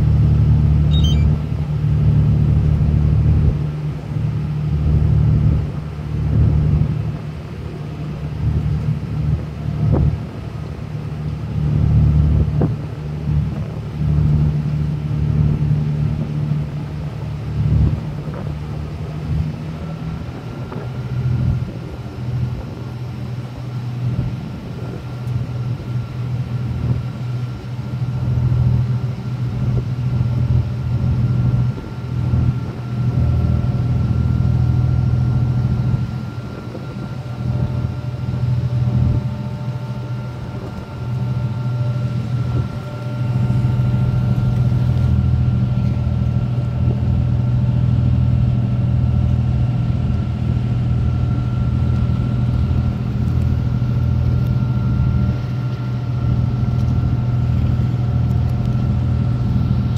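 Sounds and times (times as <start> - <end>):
ferry engine humming: 0.0 - 59.9
faint steady whine: 19.8 - 59.9.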